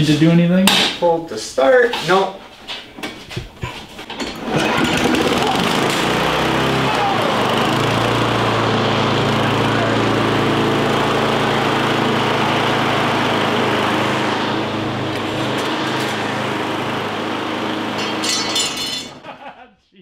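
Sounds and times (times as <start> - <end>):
lawn mower engine running: 4.2 - 19.3.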